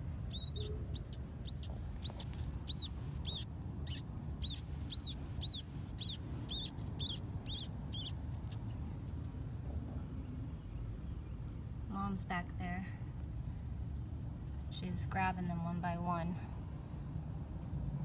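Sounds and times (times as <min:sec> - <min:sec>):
baby mice squeaking: 0:00.3 - 0:09.3.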